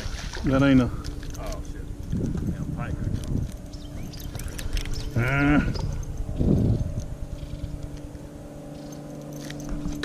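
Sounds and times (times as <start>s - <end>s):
electric motor humming: 0.0s - 10.0s
man crying out: 5.2s - 5.8s.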